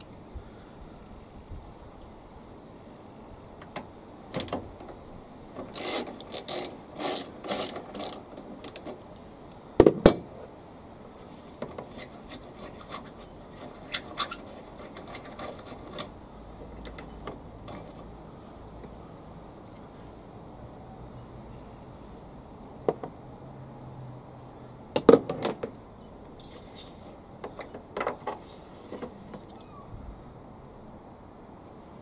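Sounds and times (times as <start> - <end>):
socket ratchet clicking: 5.7 - 8.8.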